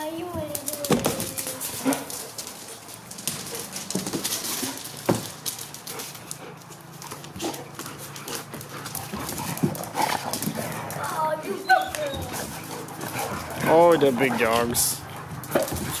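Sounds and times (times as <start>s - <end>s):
dog paws pattering and scuffling: 0.0s - 16.0s
dog whines: 11.0s - 12.6s.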